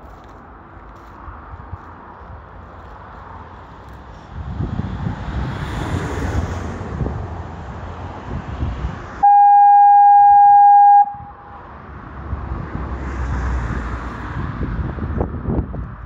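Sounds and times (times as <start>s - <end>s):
wind buffeting microphone: 4.0s - 9.2s, 12.2s - 16.0s
foghorn blast: 9.2s - 11.6s.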